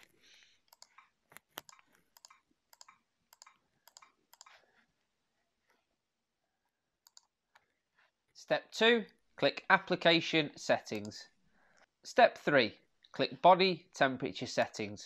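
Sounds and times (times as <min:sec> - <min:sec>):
keyboard typing clicks: 0:00.7 - 0:04.6, 0:07.0 - 0:07.3.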